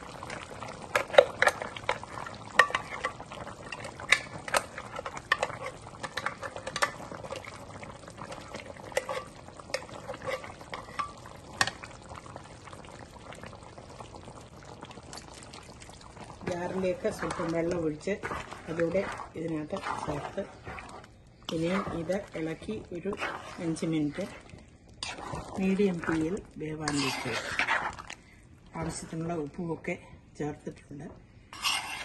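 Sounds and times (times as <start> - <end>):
curry bubbling: 0.0 - 30.0, 31.5 - 32.0
utensil scraping blender jar: 16.5 - 22.4, 23.1 - 24.4, 26.9 - 28.1, 31.6 - 32.0.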